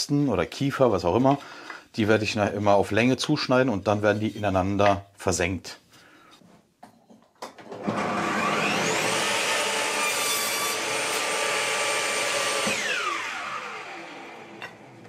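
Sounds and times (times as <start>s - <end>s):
router whining: 7.7s - 15.0s.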